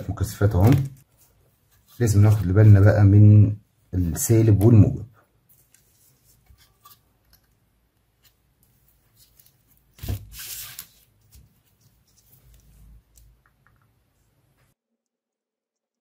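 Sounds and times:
small clicks and handling noise: 0:05.6 - 0:09.7, 0:11.7 - 0:14.0.

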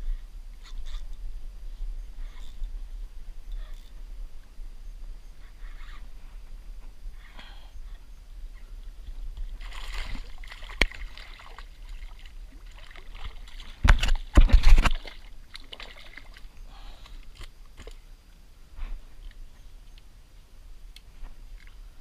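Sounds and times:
water sloshing against kayak hull: 0:09.1 - 0:16.5.

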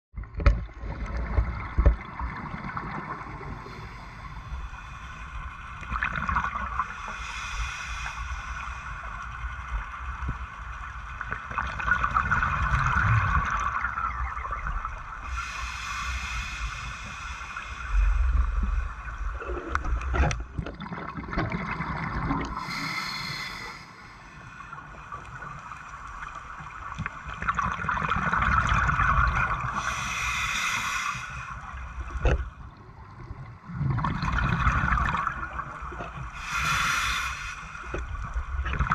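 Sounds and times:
diver breathing through a regulator: 0:03.4 - 0:05.6, 0:06.8 - 0:09.2, 0:15.2 - 0:18.7, 0:22.4 - 0:25.2, 0:29.6 - 0:32.4, 0:36.2 - 0:38.1
exhaled bubbles bursting: 0:20.5 - 0:22.6, 0:27.3 - 0:29.7, 0:33.7 - 0:35.9.

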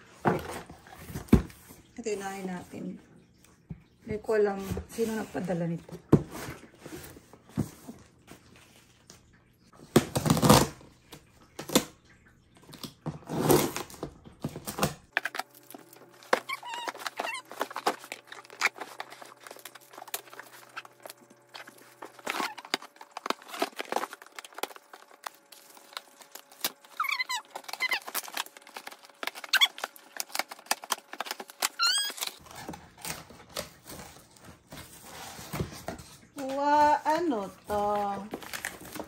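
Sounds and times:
cardboard and plastic wrap rustling: 0:00.0 - 0:02.9, 0:04.1 - 0:11.8, 0:12.7 - 0:39.0
small dog whining: 0:16.4 - 0:17.6, 0:27.0 - 0:28.2, 0:31.7 - 0:32.4.

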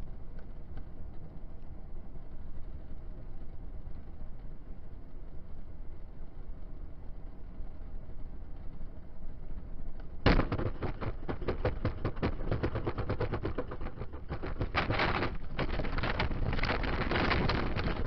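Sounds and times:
low road rumble: 0:00.0 - 0:18.0
vehicle rattling over rough ground: 0:10.2 - 0:18.0.

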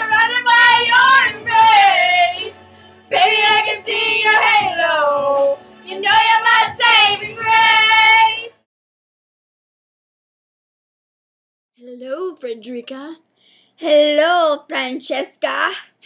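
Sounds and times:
girls singing badly: 0:00.0 - 0:08.6.

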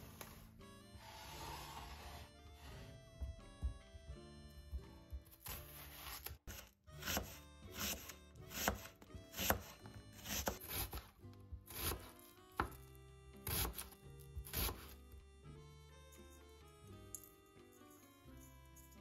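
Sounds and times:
soft background music: 0:00.0 - 0:19.0
knife slicing onion on board: 0:05.4 - 0:15.0.

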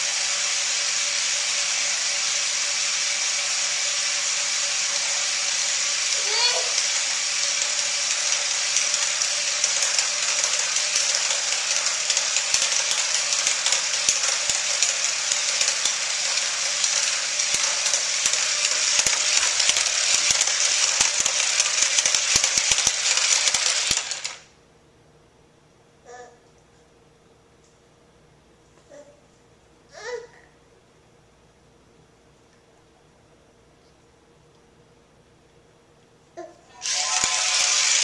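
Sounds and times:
rapid clicking and rattling: 0:00.0 - 0:24.5, 0:36.8 - 0:38.0
toy electric motor whirring: 0:00.0 - 0:24.5, 0:36.7 - 0:38.0.

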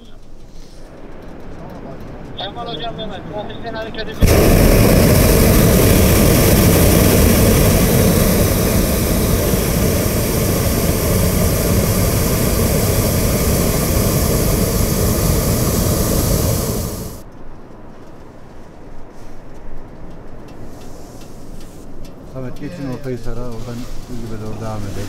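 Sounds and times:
propane burner blast: 0:04.1 - 0:17.3, 0:21.2 - 0:25.0.

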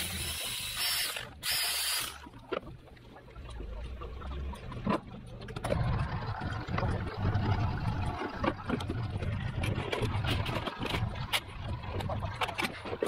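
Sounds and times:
motorboat engine rumbling: 0:02.2 - 0:13.0.

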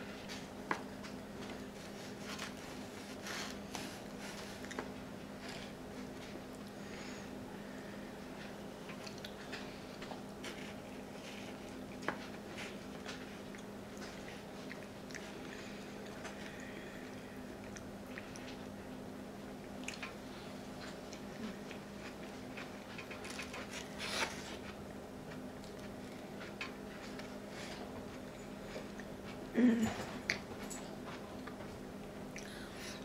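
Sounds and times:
steady low hum: 0:00.0 - 0:33.0
person chewing: 0:02.4 - 0:05.0, 0:08.9 - 0:18.8, 0:19.6 - 0:20.2.

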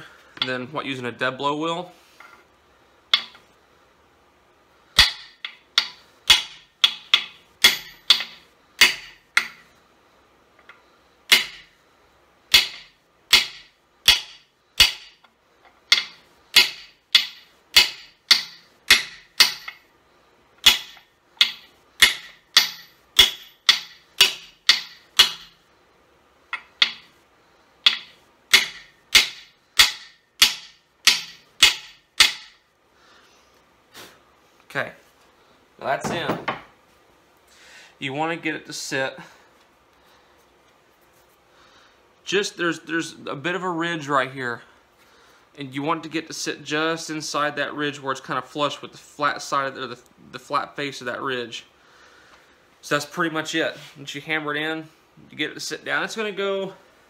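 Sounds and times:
hammer striking metal socket: 0:03.1 - 0:03.4, 0:05.0 - 0:09.6, 0:12.5 - 0:15.2, 0:15.9 - 0:19.8, 0:20.6 - 0:25.6, 0:26.5 - 0:27.1, 0:27.8 - 0:32.6.

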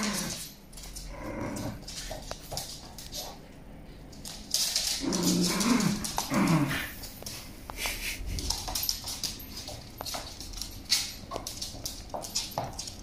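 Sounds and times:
claws clicking on wooden floor: 0:04.1 - 0:07.4, 0:08.4 - 0:13.0.

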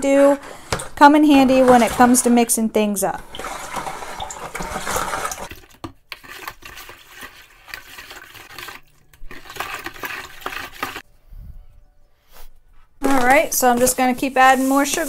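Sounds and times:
spoon swishing water in bucket: 0:00.3 - 0:02.6, 0:03.2 - 0:11.0.

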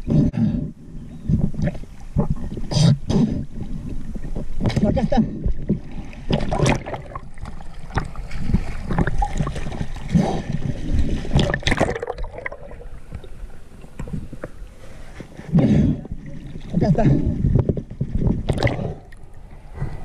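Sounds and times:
river water splashing and gurgling: 0:05.7 - 0:17.0.

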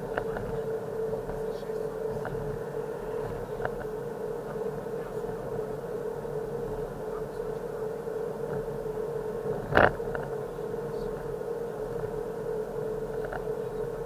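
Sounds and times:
car engine and tyre noise: 0:00.0 - 0:14.0
drone-like tone: 0:00.0 - 0:14.0
faint ticks: 0:00.1 - 0:05.5, 0:13.0 - 0:13.7.

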